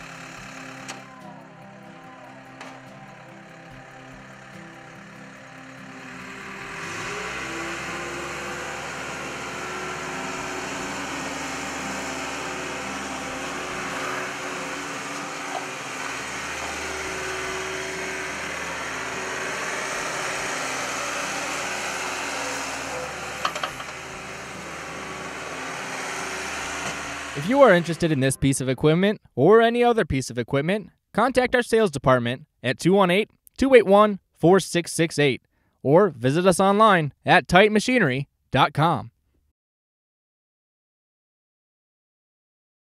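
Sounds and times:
diesel engine revving: 0:00.0 - 0:28.5.

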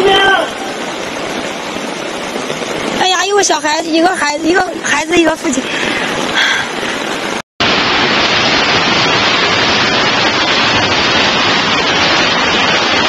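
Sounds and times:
floodwater rushing: 0:00.0 - 0:13.0.

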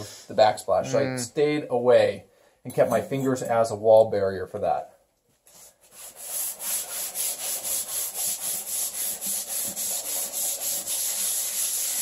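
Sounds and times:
scouring pad scrubbing metal: 0:06.1 - 0:12.0.

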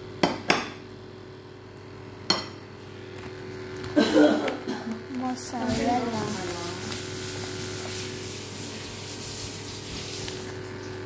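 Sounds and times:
plastic packaging crinkling: 0:04.9 - 0:11.0.

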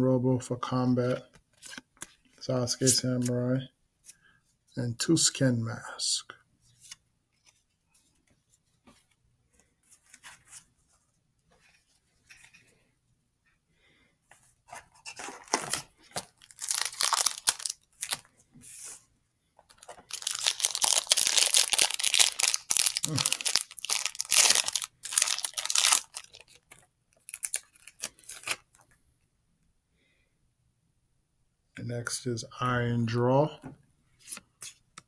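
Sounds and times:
foil wrapper tearing and crinkling: 0:15.5 - 0:18.2, 0:20.0 - 0:28.6.

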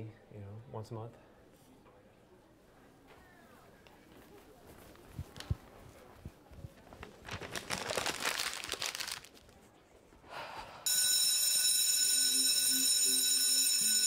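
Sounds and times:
paper crinkling: 0:04.1 - 0:09.7
electric school bell ringing: 0:10.9 - 0:14.0.

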